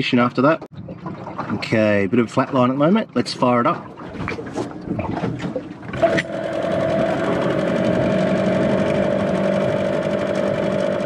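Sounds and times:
outboard motor starting and idling: 4.6s - 11.0s.

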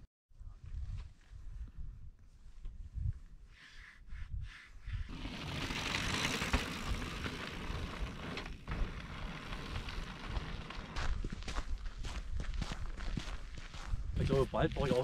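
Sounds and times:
footsteps on sandy trail: 5.1s - 15.0s.

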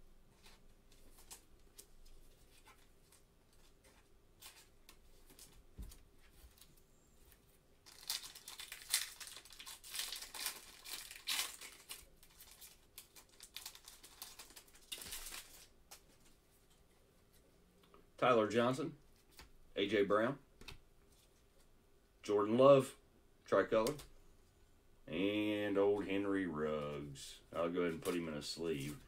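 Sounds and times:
wrapper tearing and crinkling: 7.8s - 15.7s.

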